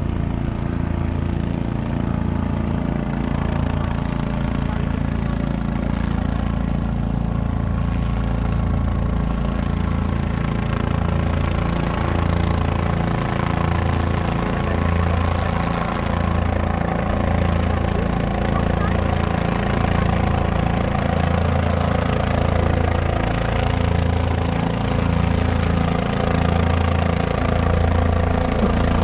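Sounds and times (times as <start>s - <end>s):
helicopter rotor and turbine: 0.0s - 29.0s.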